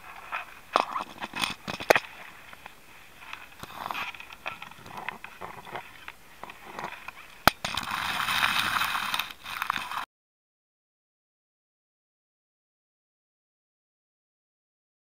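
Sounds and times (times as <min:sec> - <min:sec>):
cable scraping inside a conduit: 0:03.2 - 0:10.0.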